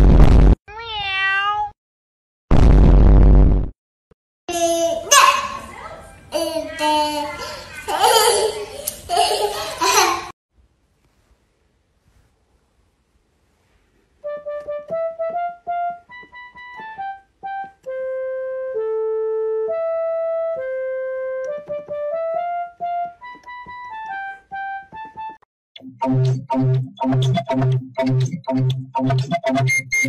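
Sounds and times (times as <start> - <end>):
electronic keyboard melody: 14.2 - 30.0.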